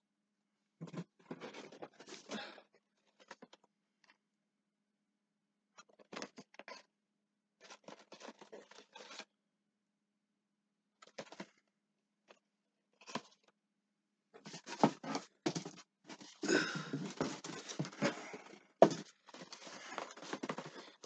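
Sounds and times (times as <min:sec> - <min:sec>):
cardboard and plastic packaging rustling: 0:00.8 - 0:03.6, 0:07.6 - 0:09.3, 0:14.4 - 0:21.0.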